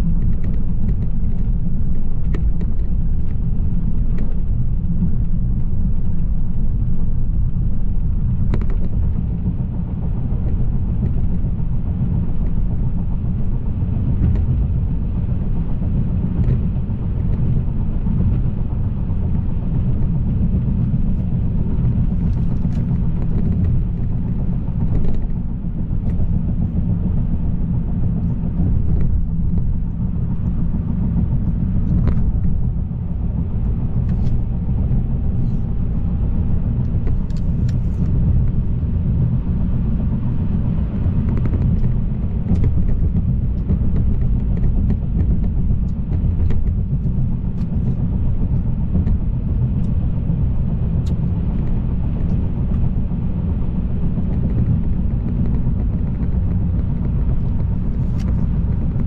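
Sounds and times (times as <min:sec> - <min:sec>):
car engine and tyre rumble: 0:00.0 - 0:59.0.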